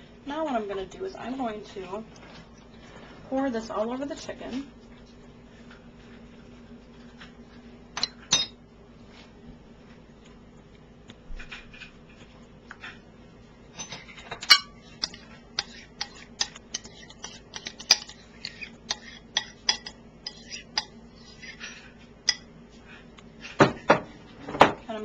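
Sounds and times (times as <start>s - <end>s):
metal spoon clinking on dishes: 8.0s - 8.6s, 13.8s - 21.7s, 22.3s - 22.5s.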